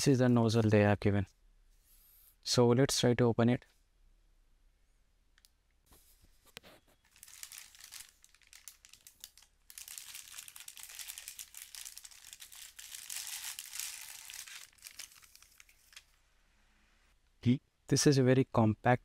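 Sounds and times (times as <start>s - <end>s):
plastic bag crinkling: 7.0s - 16.2s.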